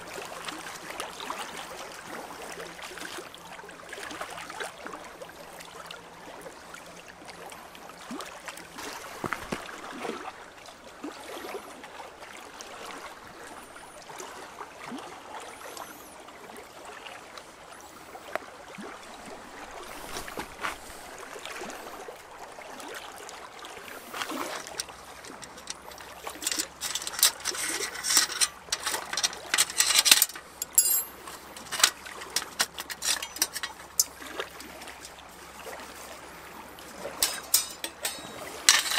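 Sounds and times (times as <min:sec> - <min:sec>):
faint handling sounds: 0:24.0 - 0:36.2, 0:36.8 - 0:38.9
metal fire box clinking: 0:24.5 - 0:35.2, 0:37.0 - 0:38.9.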